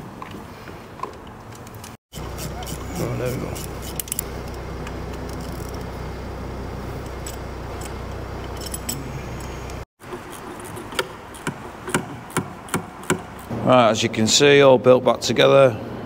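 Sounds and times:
steady low hum: 2.1 - 14.3
metallic clinks of hand tools: 7.1 - 9.6.

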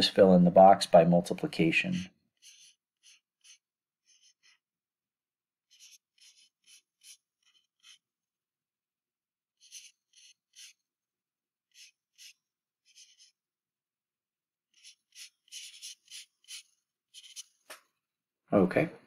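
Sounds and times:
stylus scratching on tablet: 1.6 - 4.9, 5.5 - 8.4, 9.4 - 13.6, 14.6 - 17.7.

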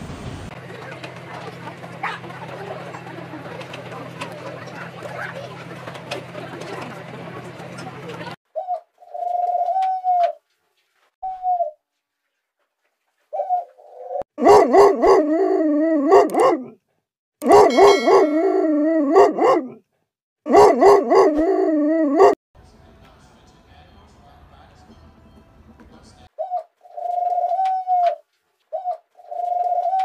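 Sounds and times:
dog whining: 13.4 - 16.8, 17.4 - 19.8, 20.5 - 22.4
dog howling: 14.4 - 16.8, 17.4 - 19.8, 20.5 - 22.4.

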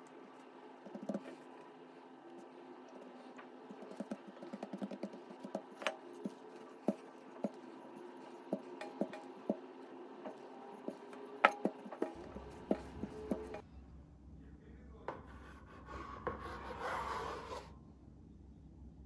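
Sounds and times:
hands pressing and folding dough: 0.0 - 13.6
faint steady hum: 0.0 - 19.0
rolling pin on wooden table: 0.8 - 1.7, 2.4 - 13.6.

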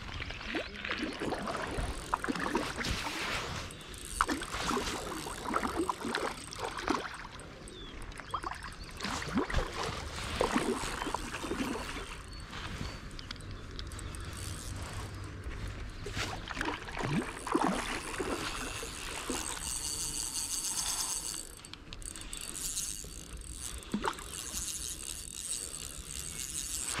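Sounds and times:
fishing reel whirring and clicking: 0.9 - 27.0
fish splashing in water: 16.3 - 20.3.

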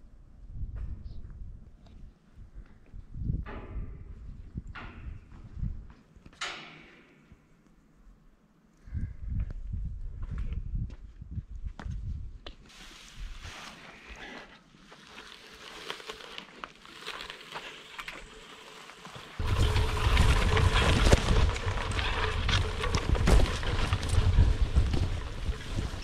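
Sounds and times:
wind buffeting microphone: 0.4 - 6.0, 8.8 - 12.5, 19.4 - 26.0
footsteps in tall grass: 12.6 - 21.4.

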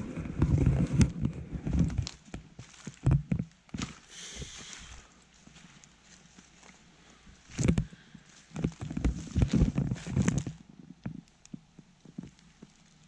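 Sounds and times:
handheld camera knocks and rubbing: 0.0 - 4.0, 7.4 - 12.8
footsteps through dry leaves: 2.0 - 3.0, 3.7 - 10.6.

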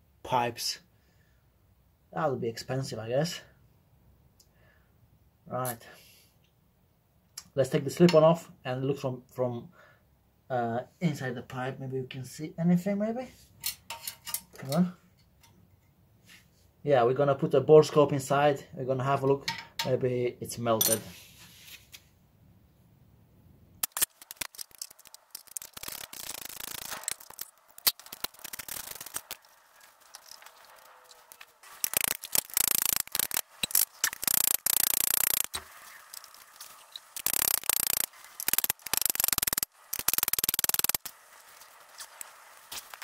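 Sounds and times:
sharp metal clicks: 23.8 - 29.5, 30.1 - 36.3, 37.1 - 41.1
metal scraping and rubbing: 23.8 - 43.0.

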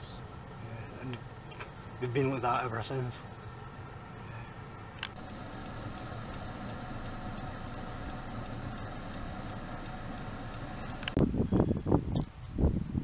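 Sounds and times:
car cabin rumble: 4.9 - 11.3
regular ticking: 5.0 - 11.2.

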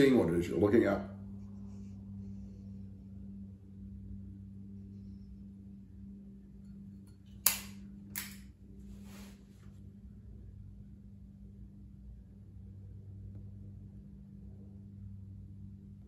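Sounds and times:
steady low hum: 0.0 - 16.0
lighter lid snapping shut: 7.4 - 8.4.

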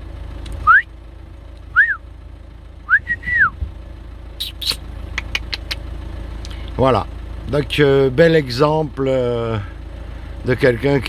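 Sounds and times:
low rumble: 0.0 - 10.5
person whistling: 0.6 - 0.9, 1.7 - 2.0, 2.9 - 3.6
sharp clicks: 4.5 - 5.8.

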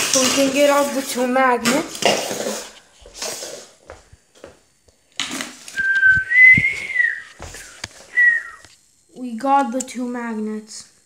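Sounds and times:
rustling and knocking of objects: 1.6 - 4.6, 5.2 - 8.2
thin high whistle-like tone: 5.7 - 8.7.

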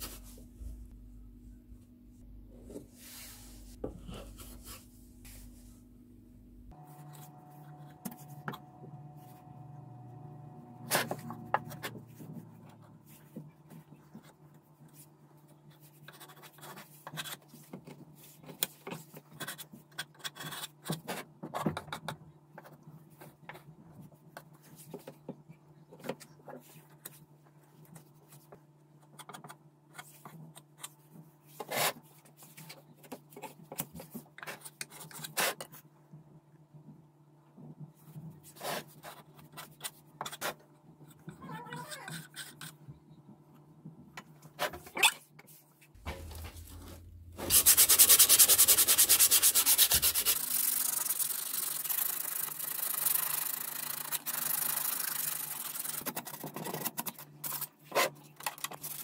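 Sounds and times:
steady low hum: 0.0 - 13.9, 46.0 - 49.5.

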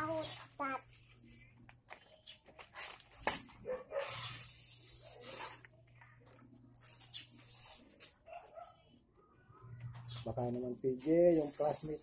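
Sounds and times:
rasping scrape of leaf: 6.8 - 8.2.

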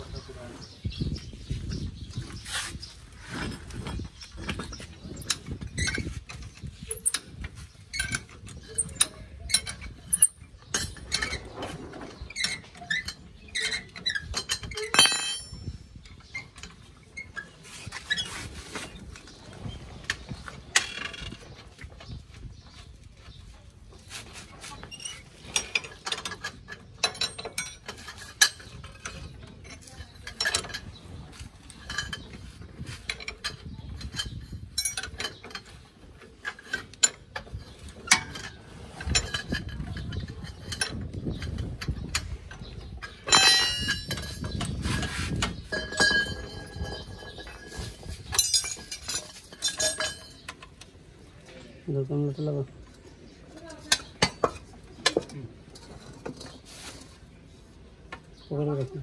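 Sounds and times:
sharp ringing metal clink: 14.9 - 15.7.

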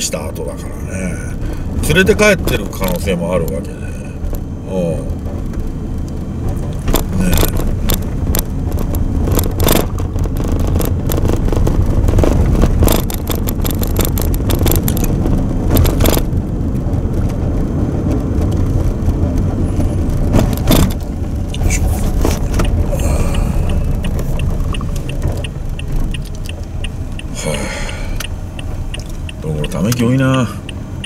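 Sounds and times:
car road noise rumble: 0.0 - 31.0
rattles: 6.4 - 16.5, 18.4 - 27.5
light ticking: 20.9 - 31.0.

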